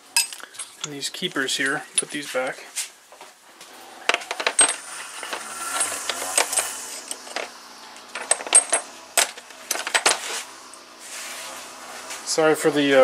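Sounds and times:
metal tool pieces clinking: 0:04.1 - 0:10.4
distant weed trimmer running: 0:04.8 - 0:08.1.

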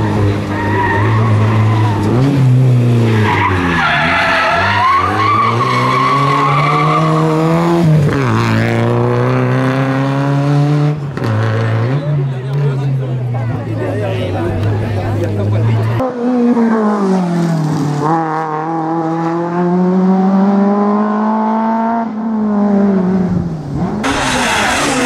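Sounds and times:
car engine revving hard: 0:00.0 - 0:12.1, 0:17.9 - 0:25.0.

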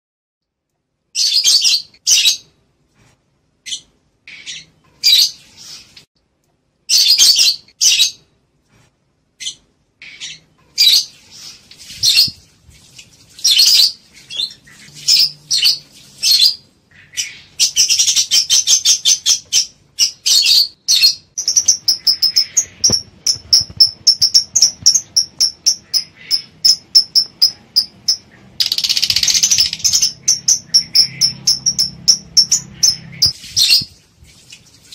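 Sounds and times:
lovebirds chirping: 0:03.6 - 0:06.1, 0:09.4 - 0:34.0
birds chattering: 0:13.4 - 0:33.8.

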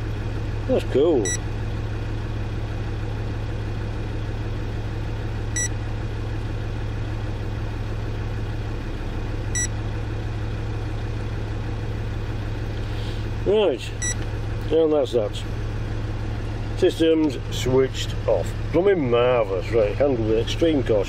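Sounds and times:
diesel engine idling: 0:00.0 - 0:21.0
short electronic beeps: 0:01.2 - 0:01.4, 0:05.5 - 0:05.8, 0:09.5 - 0:09.8, 0:14.0 - 0:14.2.

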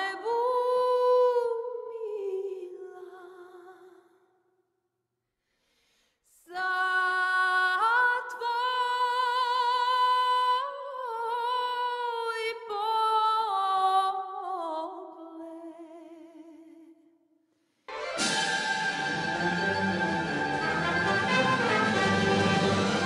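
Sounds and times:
woman singing unaccompanied: 0:00.0 - 0:03.9, 0:06.5 - 0:16.9.

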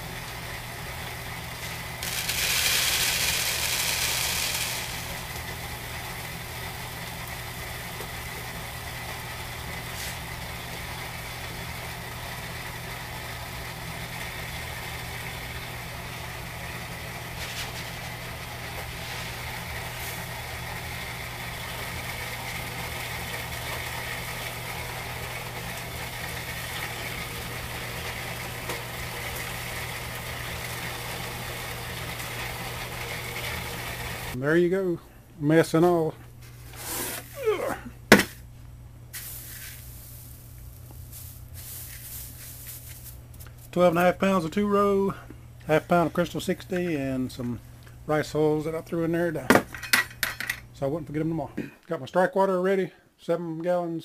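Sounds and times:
low electrical hum: 0:00.0 - 0:54.0
grain pouring into a bowl: 0:02.0 - 0:05.8, 0:39.1 - 0:43.2.

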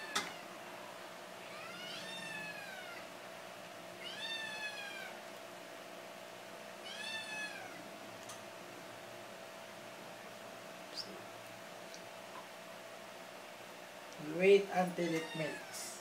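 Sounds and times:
meow-like animal cries: 0:00.0 - 0:00.5, 0:01.4 - 0:03.1, 0:04.0 - 0:05.2, 0:06.8 - 0:07.8, 0:15.0 - 0:16.0.

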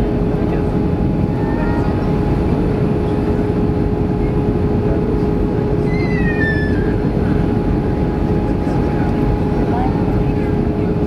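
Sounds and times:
airplane engine and airflow roar: 0:00.0 - 0:11.0
steady hum tone: 0:00.0 - 0:11.0.

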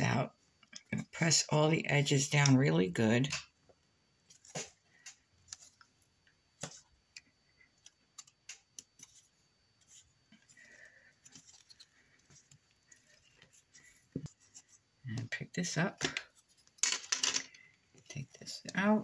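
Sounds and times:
soft rustle: 0:08.2 - 0:15.2.

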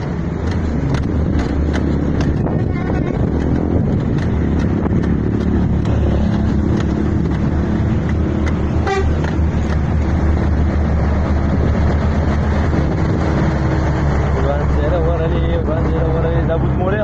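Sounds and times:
truck diesel engine running: 0:00.0 - 0:17.0
truck horn honk: 0:08.7 - 0:09.4.

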